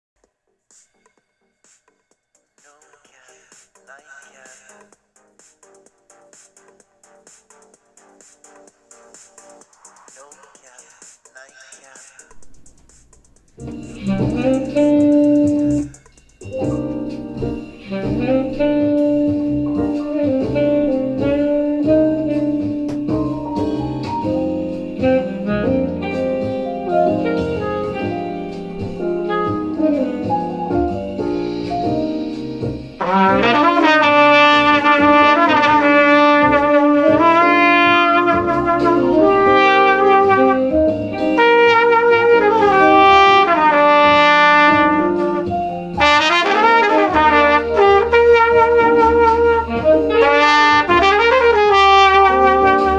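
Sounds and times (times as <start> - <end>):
jazz backing music: 0.6 - 52.9
trumpet improvising: 12.3 - 30.6, 33.0 - 52.9.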